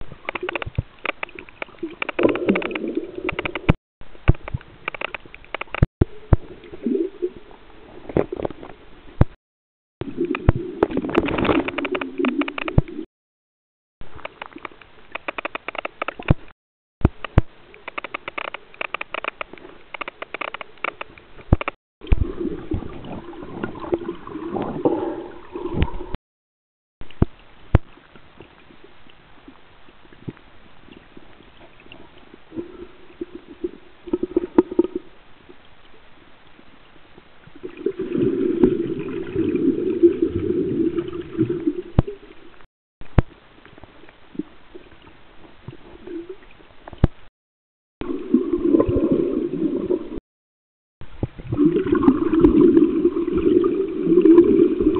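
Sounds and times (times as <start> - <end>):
underwater gurgling and sloshing: 0.0 - 9.3, 10.0 - 13.1, 17.1 - 26.2, 27.0 - 47.3, 48.0 - 50.2, 51.0 - 54.9
sharp clicks: 0.3 - 5.9, 11.1 - 13.0, 14.2 - 21.8.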